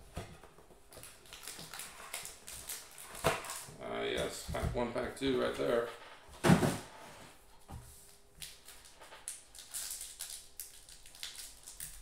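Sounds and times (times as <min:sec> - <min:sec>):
foil wrapper tearing: 0:01.0 - 0:03.7, 0:08.4 - 0:12.0.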